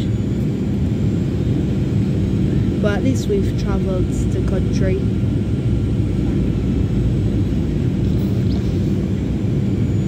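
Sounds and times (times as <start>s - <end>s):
airplane cabin rumble: 0.0s - 10.0s.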